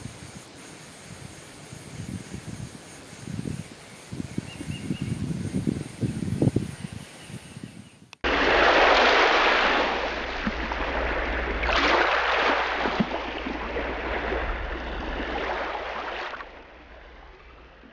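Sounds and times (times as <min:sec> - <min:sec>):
ocean waves washing in: 0:08.2 - 0:17.9.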